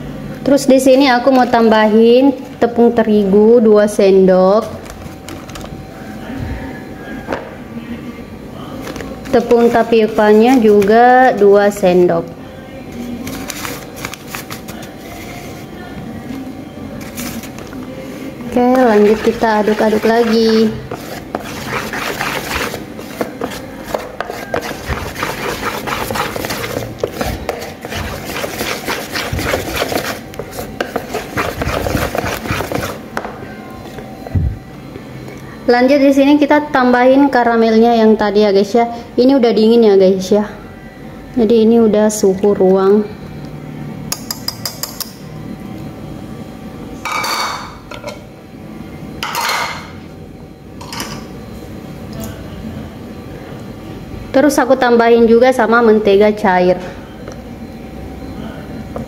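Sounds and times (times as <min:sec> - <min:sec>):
whisk scraping a pan: 0:09.4 - 0:11.0, 0:18.7 - 0:33.0.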